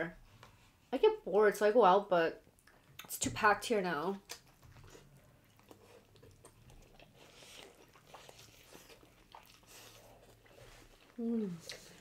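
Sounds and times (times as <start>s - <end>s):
people chewing: 4.2s - 12.0s.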